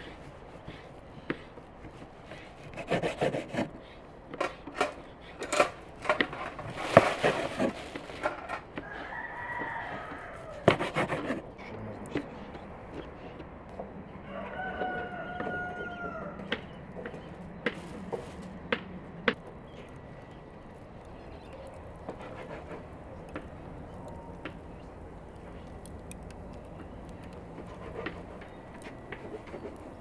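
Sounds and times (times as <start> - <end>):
sharp clicks: 19.3 - 30.0.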